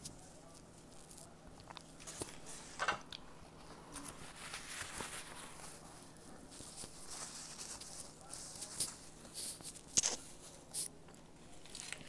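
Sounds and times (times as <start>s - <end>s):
crunchy snack chewing: 0.5s - 2.4s, 9.7s - 10.9s, 11.6s - 12.0s.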